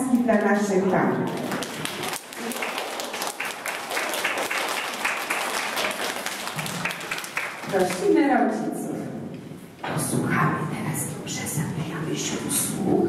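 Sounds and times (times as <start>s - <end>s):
crowd applauding: 1.4s - 8.1s.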